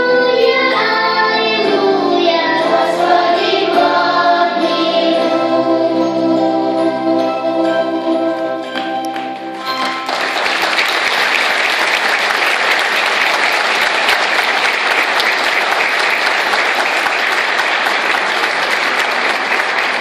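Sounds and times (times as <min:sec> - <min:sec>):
choir singing chord: 0:00.0 - 0:10.1
audience applauding: 0:08.6 - 0:20.0.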